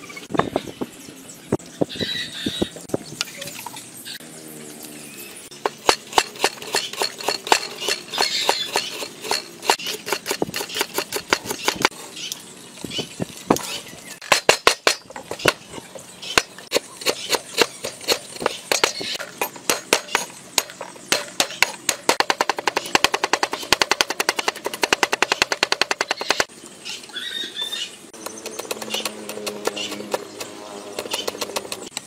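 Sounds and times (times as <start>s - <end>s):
cleaver chopping on wooden board: 28.2s - 32.0s.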